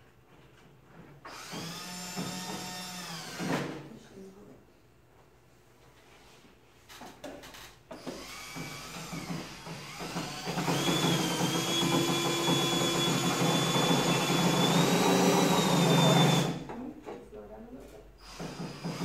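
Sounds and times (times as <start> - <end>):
power tool motor whining: 1.3 - 3.6, 8.0 - 16.6.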